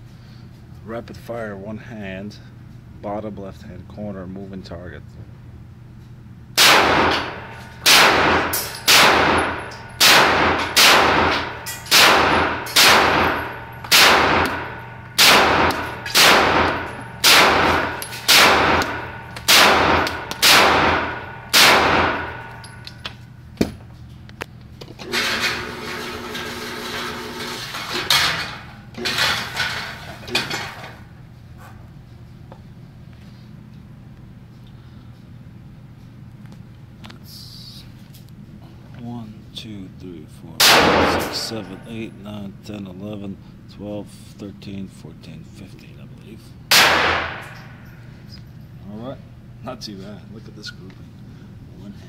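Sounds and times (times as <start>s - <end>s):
pistol shots echoing: 6.6s - 22.7s, 40.6s - 41.8s, 46.7s - 47.7s
electric target carrier running: 25.0s - 30.0s.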